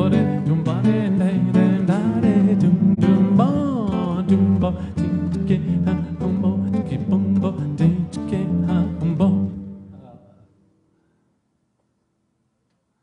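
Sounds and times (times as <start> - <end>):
acoustic guitar strummed: 0.0 - 10.0
man singing: 0.0 - 10.2.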